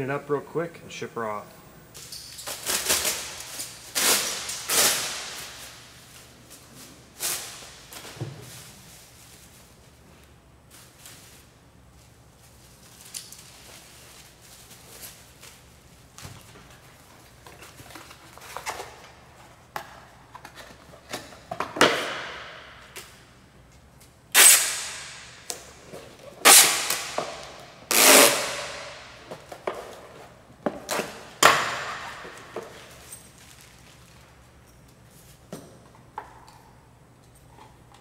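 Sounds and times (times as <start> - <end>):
packing tape ripping off tape gun: 2.4 - 6.0, 24.3 - 25.7, 26.4 - 30.0, 30.8 - 32.8
bubble wrap crinkling: 32.8 - 34.6.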